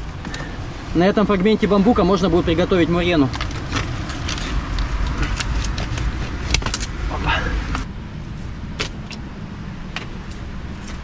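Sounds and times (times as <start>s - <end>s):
wind rumbling on microphone: 0.0s - 11.0s
sharp clicks and knocks: 3.3s - 7.0s.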